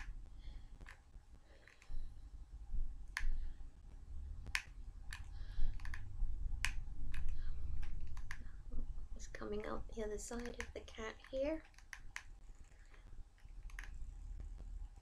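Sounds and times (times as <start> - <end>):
low rumble: 2.0 - 10.0.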